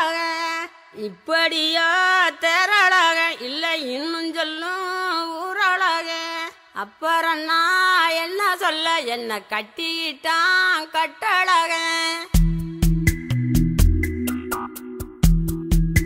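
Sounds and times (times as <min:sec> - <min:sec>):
woman singing: 0:00.0 - 0:12.7.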